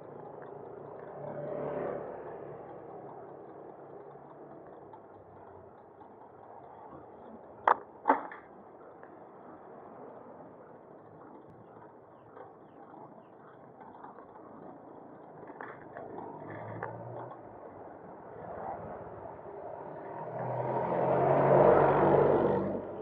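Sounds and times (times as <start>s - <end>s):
motor vehicle passing: 0.0s - 5.5s, 11.2s - 23.0s
bicycle clicks: 0.0s - 18.7s
road and wind noise: 0.0s - 23.0s.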